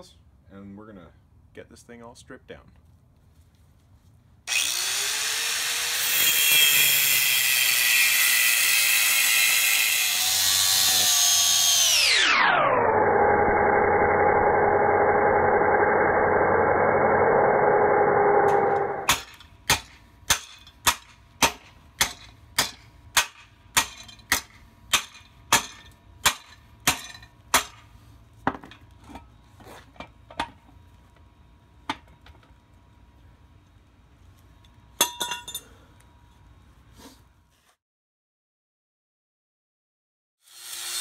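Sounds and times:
angle grinder cutting steel: 0:04.5 - 0:19.1, 0:40.4 - 0:41.0
hammer striking steel: 0:18.5 - 0:27.9.

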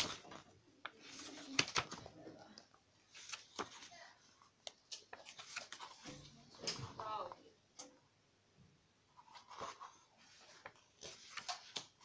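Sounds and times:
paper rustling: 0:00.0 - 0:07.4, 0:09.1 - 0:12.0
photobook pages turning: 0:00.0 - 0:07.4, 0:09.1 - 0:12.0.

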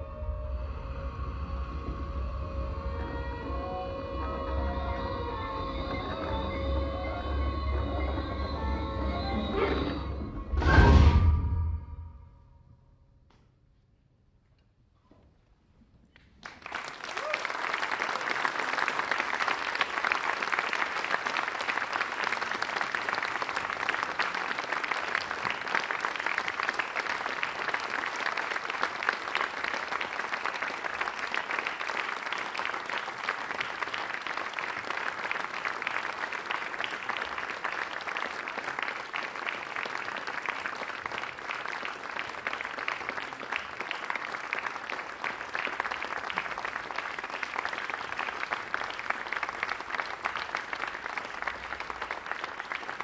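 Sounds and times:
audience applauding: 0:16.1 - 0:53.0.

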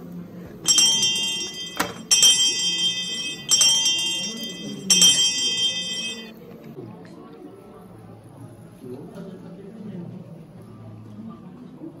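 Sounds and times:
shimmering bell-like chime: 0:00.7 - 0:06.3.

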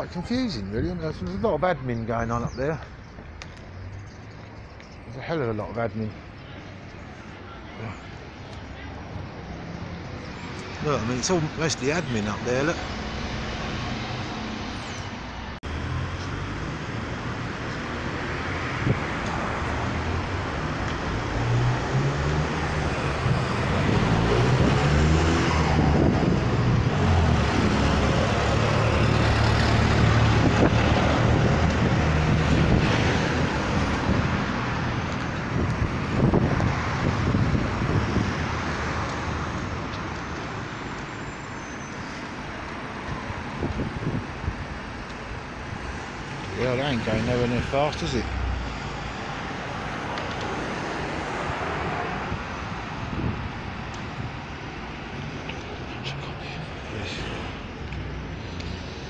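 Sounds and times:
vehicle engine passing by: 0:19.5 - 0:35.1.

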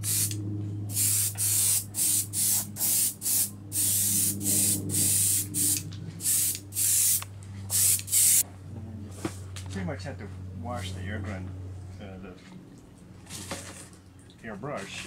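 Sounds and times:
airbrush hissing blasts: 0:00.0 - 0:08.4
steady low hum: 0:00.0 - 0:15.0.

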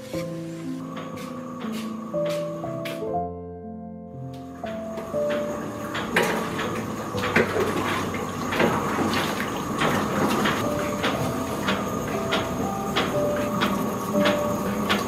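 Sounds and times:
splashes and plops: 0:07.2 - 0:10.6.

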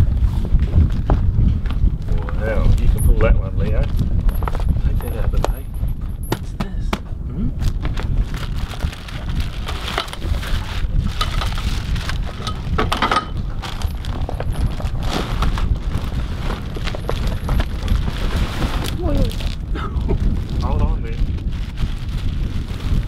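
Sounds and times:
wind on microphone: 0:00.0 - 0:23.0
plastic wrapping crinkling: 0:07.6 - 0:12.8, 0:13.4 - 0:23.0.

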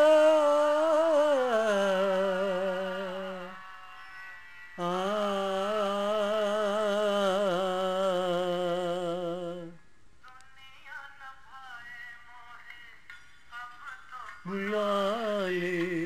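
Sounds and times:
man singing long notes: 0:00.0 - 0:09.8, 0:14.4 - 0:16.0.

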